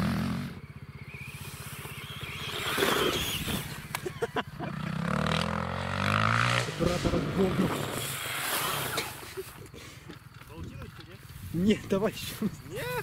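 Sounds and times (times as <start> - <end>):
electric motor of toy truck: 1.3 - 3.9
rising tone: 4.8 - 9.2
low rumble: 6.6 - 8.1.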